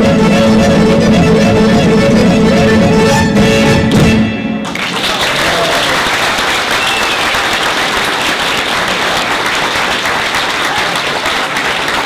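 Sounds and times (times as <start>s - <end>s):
audience applauding: 4.6s - 12.0s.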